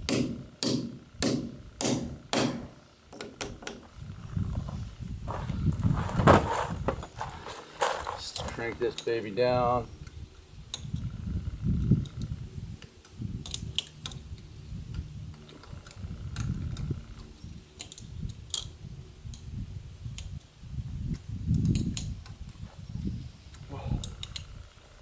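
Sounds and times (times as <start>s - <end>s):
wind rumble on microphone: 3.5s - 8.9s, 9.8s - 25.0s
sharp metal clicks: 13.0s - 14.2s, 17.2s - 18.7s.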